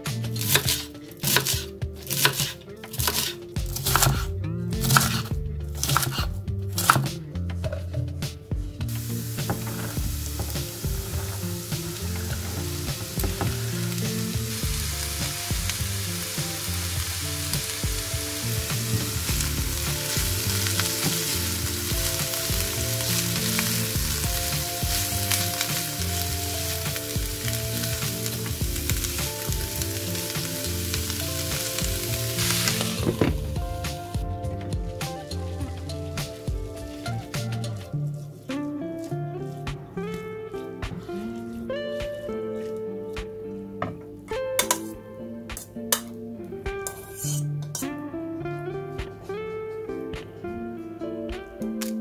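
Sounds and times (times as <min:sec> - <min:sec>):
vegetables sizzling in frying pan: 0:08.9 - 0:34.2.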